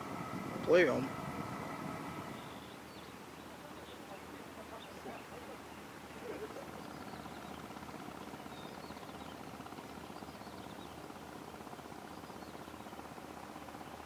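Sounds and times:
boat engine droning: 0.0 - 2.9.

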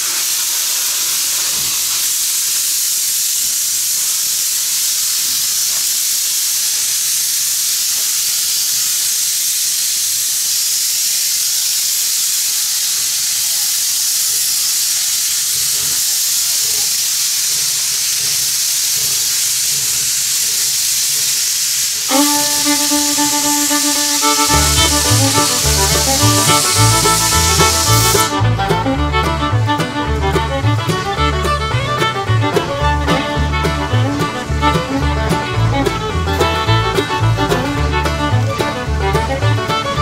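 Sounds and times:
steam hissing: 0.0 - 40.0
music: 22.1 - 40.0.

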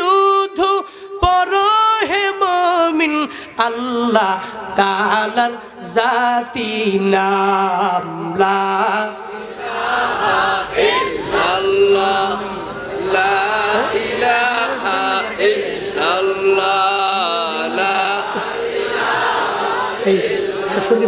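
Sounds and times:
voices chanting together: 4.1 - 21.0.

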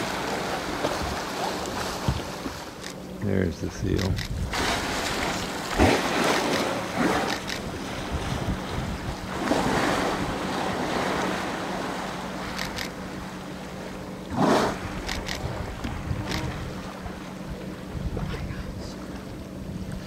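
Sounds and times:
boat engine hum: 0.0 - 20.0
moving water: 0.0 - 20.0
water splashes: 0.0 - 20.0
wind on microphone: 1.8 - 2.5, 3.7 - 6.3, 7.0 - 10.9, 14.6 - 18.9
whale blows: 14.2 - 17.2.

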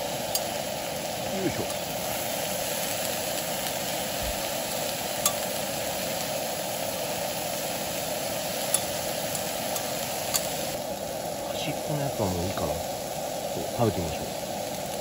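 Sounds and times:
gas burner hiss: 0.0 - 15.0
onion rings sizzling on griddle: 0.0 - 15.0
metal tongs clicking on griddle: 0.3 - 0.5, 5.2 - 5.5, 8.7 - 10.6.

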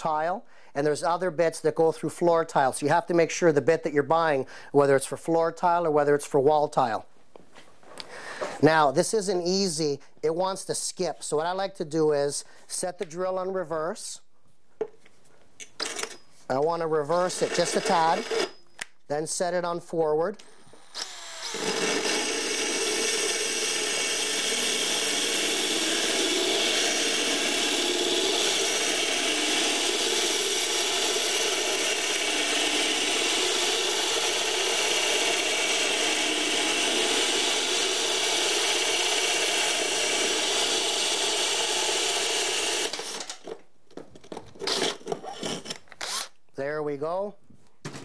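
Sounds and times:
drill grinding through tile: 17.2 - 18.6, 20.7 - 43.5, 44.6 - 46.3.

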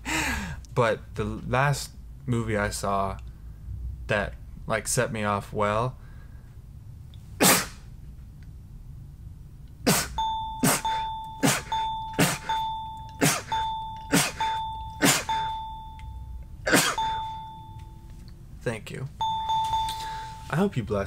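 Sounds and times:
man sneezing: 7.4 - 7.9, 9.8 - 12.5, 13.2 - 13.5, 14.1 - 15.6, 16.6 - 17.2
steady ding-like tone: 10.2 - 18.2, 19.2 - 20.6.

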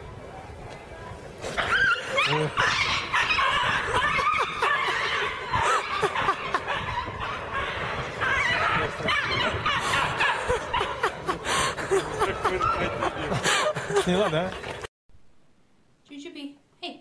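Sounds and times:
people laughing: 3.4 - 7.6, 8.3 - 14.9.

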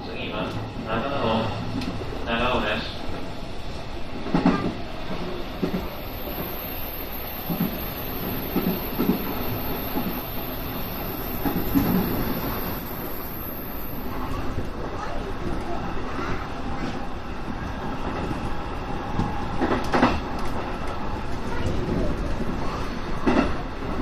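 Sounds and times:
electric train running: 4.3 - 15.1.

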